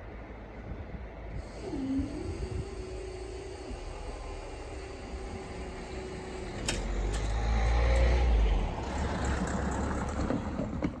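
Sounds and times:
car driving past: 0:05.6 - 0:10.8.

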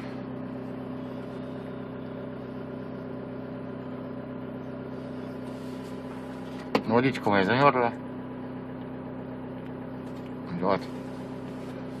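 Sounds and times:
heater fan blowing: 0:00.0 - 0:07.0, 0:08.2 - 0:12.0
diesel engine idling: 0:00.0 - 0:12.0.

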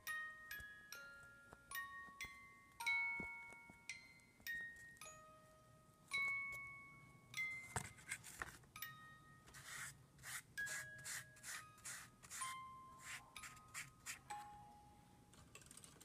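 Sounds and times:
glockenspiel-like background music: 0:00.0 - 0:09.7, 0:10.5 - 0:16.0
scratchy rubbing strokes: 0:09.5 - 0:14.3.

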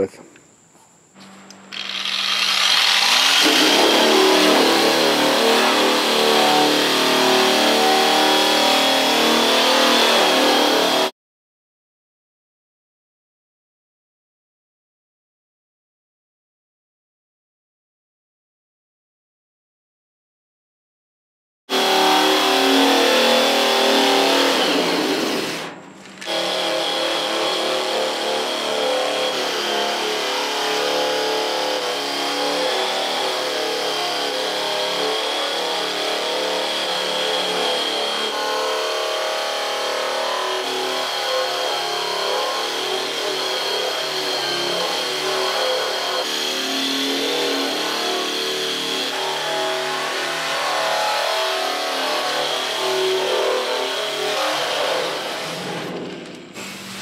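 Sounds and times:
electric stripping tool grinding steel: 0:01.2 - 0:11.1, 0:21.7 - 0:57.0.

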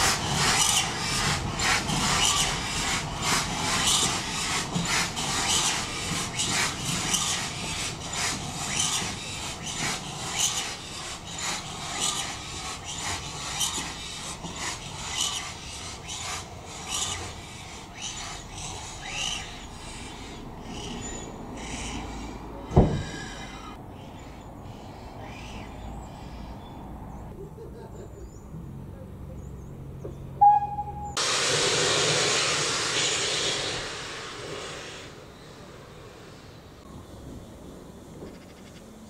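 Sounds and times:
steam locomotive hissing exhaust beats: 0:00.0 - 0:26.0, 0:30.4 - 0:38.3
sharp thump: 0:22.7 - 0:23.2.

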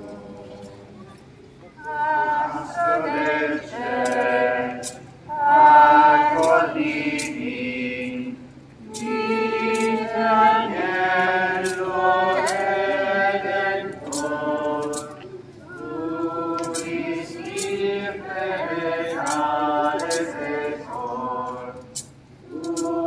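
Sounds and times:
group singing a hymn: 0:00.0 - 0:01.0, 0:01.8 - 0:23.0.

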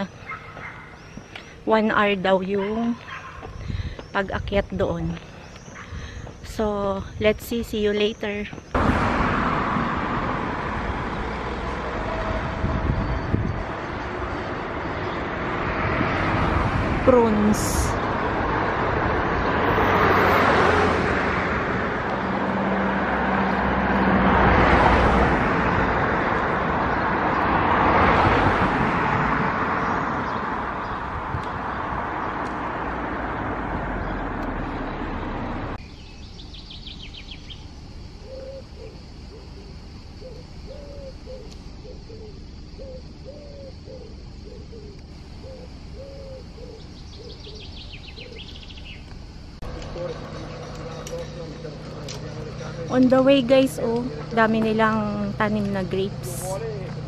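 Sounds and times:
road traffic passing: 0:00.0 - 0:57.0
bird calling low notes: 0:38.2 - 0:54.3.

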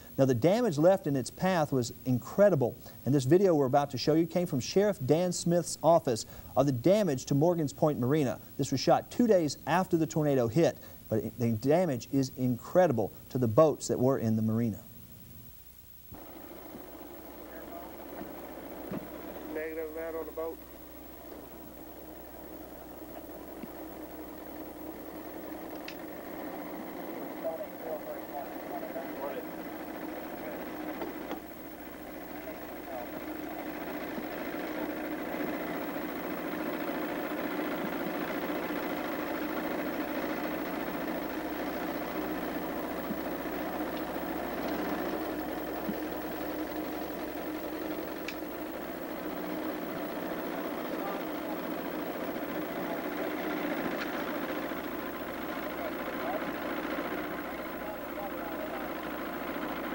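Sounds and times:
engine idling: 0:16.2 - 0:59.9
faint clicks: 0:25.7 - 0:26.1, 0:43.9 - 0:44.9, 0:48.1 - 0:48.5.

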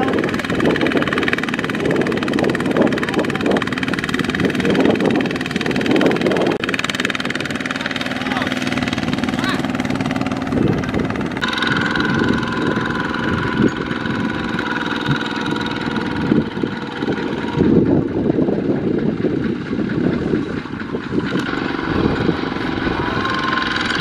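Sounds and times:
diesel engine running under load: 0:00.0 - 0:24.0.

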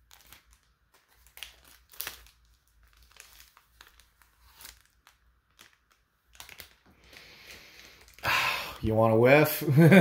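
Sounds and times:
foil wrapper crinkling: 0:00.0 - 0:08.3.

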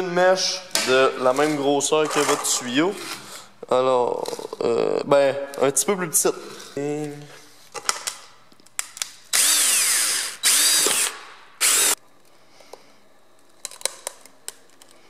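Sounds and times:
electric drill boring plastic: 0:09.3 - 0:12.0.

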